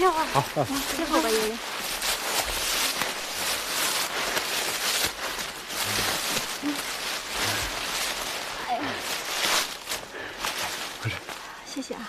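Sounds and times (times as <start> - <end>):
dry leaves rustling and crunching: 0.0 - 12.0
steady outdoor hiss: 0.0 - 12.0.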